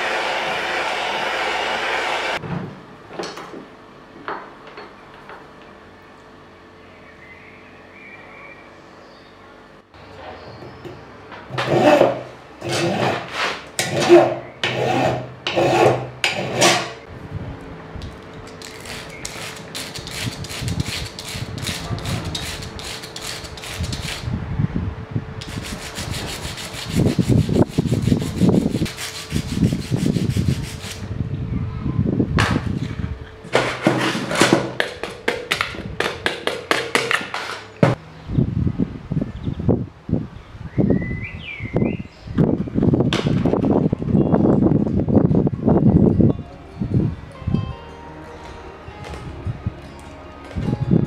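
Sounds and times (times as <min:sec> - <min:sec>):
file rasping on copper: 0:11.6 - 0:17.0, 0:18.8 - 0:24.3, 0:25.4 - 0:31.0
rubbing on sandpaper: 0:18.7 - 0:24.3, 0:25.4 - 0:31.0.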